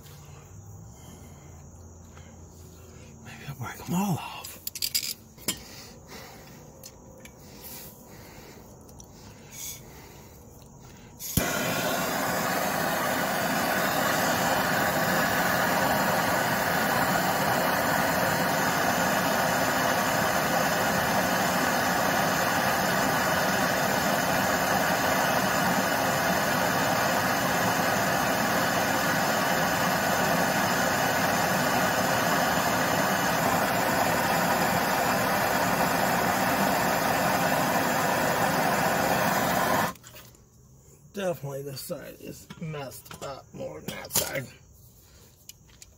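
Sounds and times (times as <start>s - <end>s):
torch flame hissing: 11.0s - 40.0s
torch lighting click: 11.2s - 40.0s.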